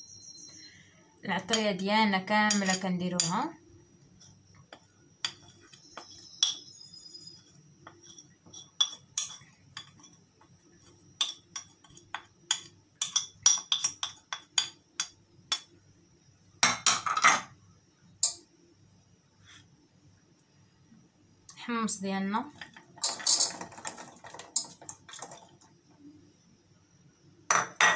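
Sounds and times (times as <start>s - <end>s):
spoon clatter: 4.7s - 6.7s, 7.9s - 10.2s, 11.2s - 15.6s, 22.6s - 25.4s.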